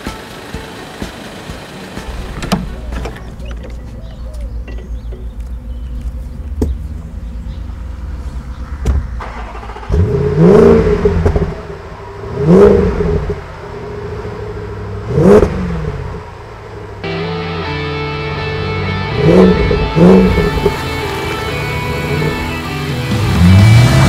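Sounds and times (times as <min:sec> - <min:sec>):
engine idling with low rumble: 0:00.0 - 0:24.0
engine revving: 0:07.2 - 0:24.0.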